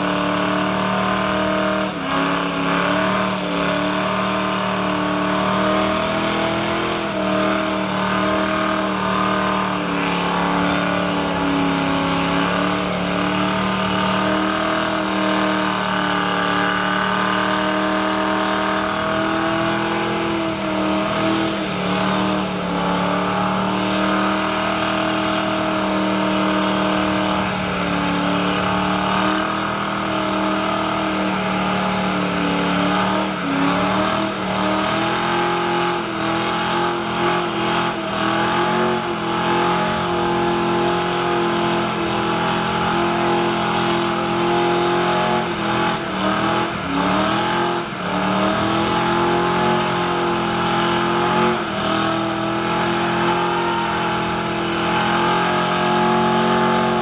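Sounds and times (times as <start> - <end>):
car engine at high revs: 0.0 - 57.0.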